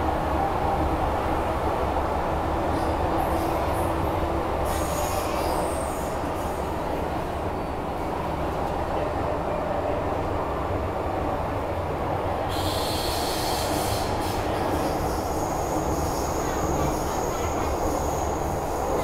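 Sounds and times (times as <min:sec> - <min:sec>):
train rumble: 0:00.0 - 0:19.0
hiss and high squeal: 0:04.7 - 0:06.6, 0:12.5 - 0:19.0.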